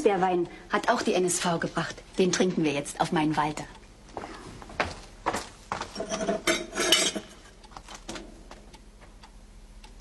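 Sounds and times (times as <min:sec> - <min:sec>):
wine glasses and bottle clinking: 0:06.0 - 0:07.3.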